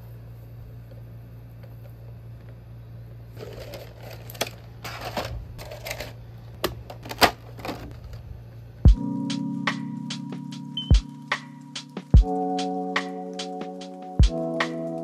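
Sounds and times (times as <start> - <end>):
packaging rustling: 3.4 - 6.2
background music: 8.9 - 15.0.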